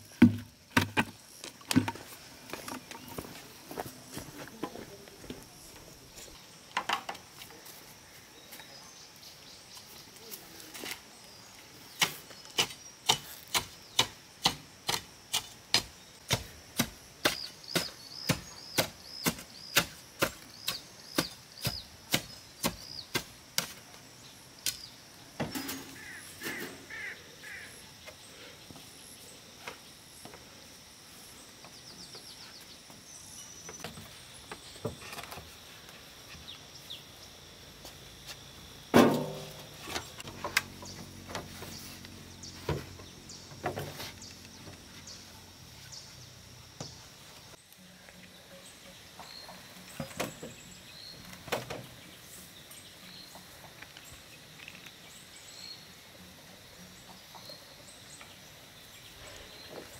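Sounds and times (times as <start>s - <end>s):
birds chirping: 0.0s - 15.0s, 15.7s - 37.7s, 39.4s - 59.9s
sharp chopping strikes: 12.0s - 23.8s.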